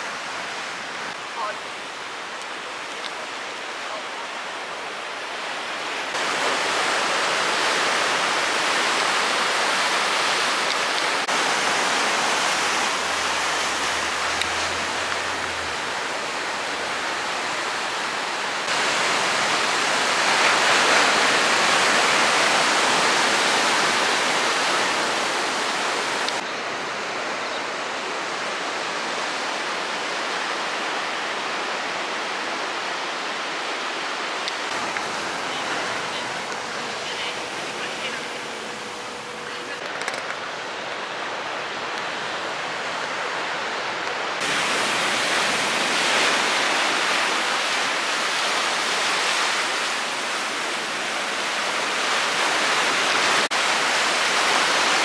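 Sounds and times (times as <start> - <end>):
waves breaking over rocks: 6.1 - 26.4.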